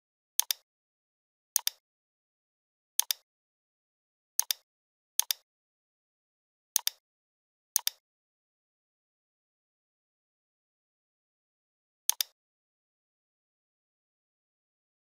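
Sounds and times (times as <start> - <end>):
computer mouse button clicking: 0.4 - 0.6, 1.6 - 1.8, 3.0 - 3.2, 4.4 - 4.6, 5.2 - 5.4, 6.8 - 7.0, 7.8 - 8.0, 12.1 - 12.4.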